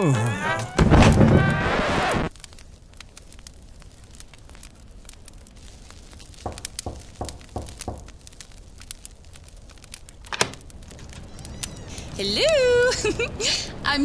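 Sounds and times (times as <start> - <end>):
faint crackle: 0.1 - 13.9
knocks on a door: 6.4 - 8.0.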